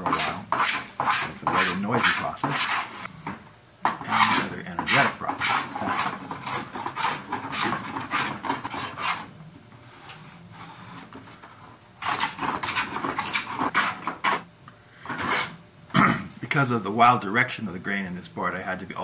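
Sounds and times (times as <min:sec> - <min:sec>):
hand plane rasping across wood: 0:00.0 - 0:03.1, 0:04.0 - 0:09.3, 0:12.0 - 0:14.4, 0:15.1 - 0:15.5.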